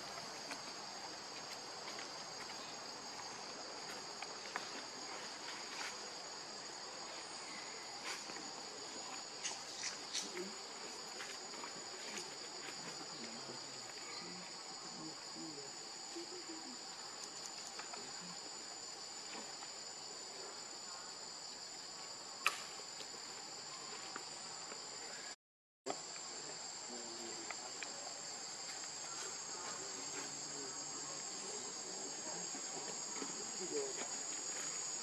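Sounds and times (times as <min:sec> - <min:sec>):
high-pitched insect chorus: 0:00.0 - 0:35.0
sharp click: 0:22.4 - 0:22.7.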